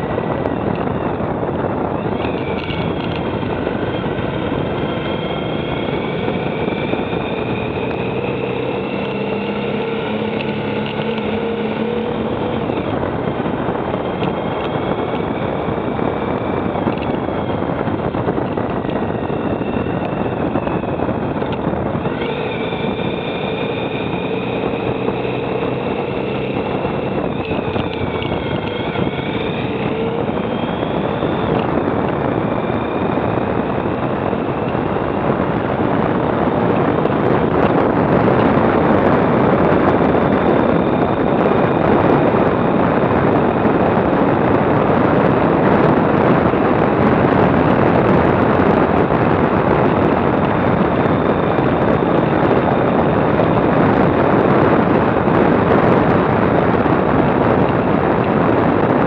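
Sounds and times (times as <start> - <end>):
motorcycle engine running: 0.0 - 59.0
wind on microphone: 0.0 - 59.0.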